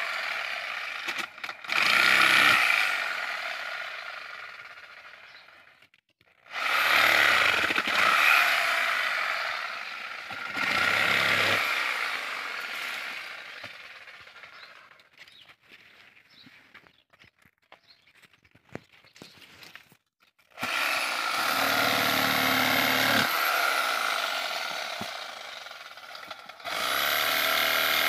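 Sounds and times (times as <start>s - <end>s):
electric cutting tool cutting palm fronds: 0.0s - 5.3s, 6.5s - 15.1s, 20.6s - 28.0s.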